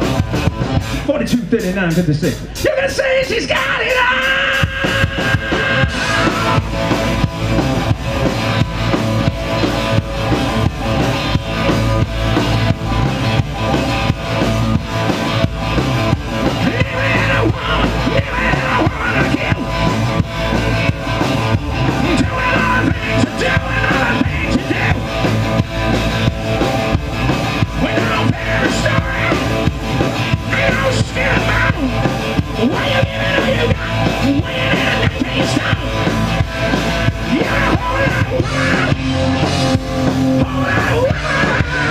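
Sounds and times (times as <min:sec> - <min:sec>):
drum kit beat: 0:00.0 - 0:41.9
electric guitars: 0:00.0 - 0:41.9
shouted vocal: 0:02.6 - 0:06.8, 0:16.6 - 0:19.9, 0:21.9 - 0:25.1, 0:30.4 - 0:36.0, 0:37.2 - 0:39.2, 0:40.3 - 0:41.9.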